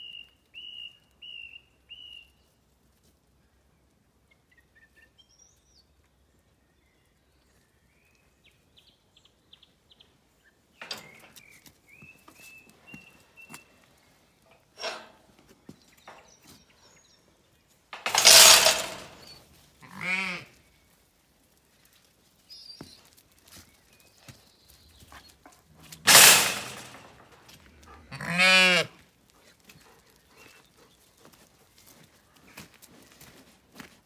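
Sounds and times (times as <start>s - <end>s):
sheep bleating: 19.8s - 20.5s, 28.1s - 28.9s.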